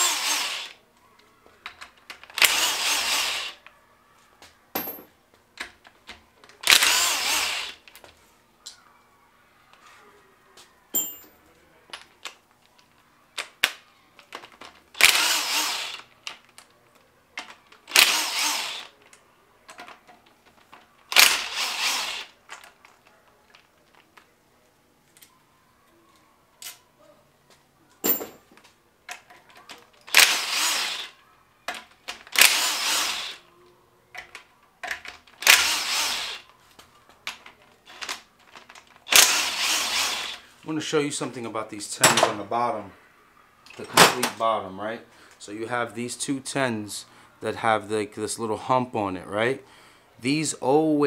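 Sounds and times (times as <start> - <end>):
cordless impact wrench: 0.0 - 0.8, 2.2 - 3.6, 6.6 - 7.8, 15.0 - 16.1, 17.8 - 18.9, 21.1 - 22.4, 30.1 - 31.2, 32.2 - 33.4, 35.4 - 36.5, 39.1 - 40.4
bolts and tools clattering: 10.9 - 12.4, 28.0 - 30.5.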